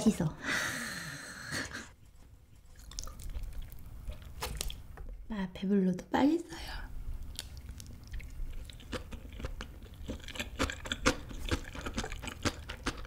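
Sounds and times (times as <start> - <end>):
person chewing food: 2.5 - 5.0, 7.2 - 13.0.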